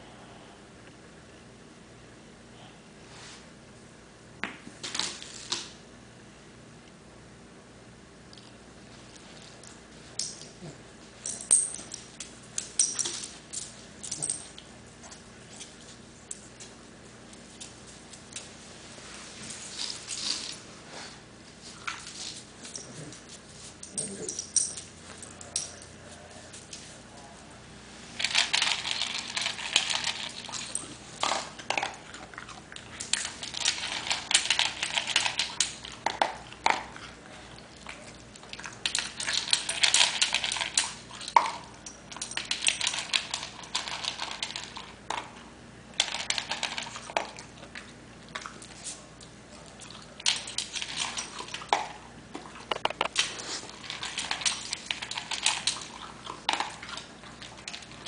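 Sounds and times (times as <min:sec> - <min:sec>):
dogs scuffling on hard floor: 0:11.2 - 0:27.2.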